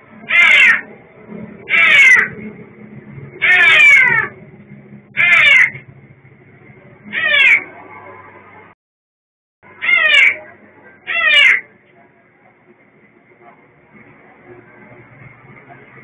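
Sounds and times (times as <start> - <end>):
cat meowing loudly: 0.3 - 0.8, 1.7 - 2.3, 3.4 - 4.3, 7.1 - 7.6, 9.8 - 10.4, 11.1 - 11.6.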